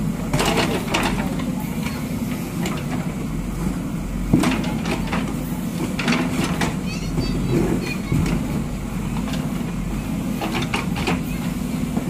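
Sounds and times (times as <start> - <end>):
diesel engine running: 0.0 - 12.0.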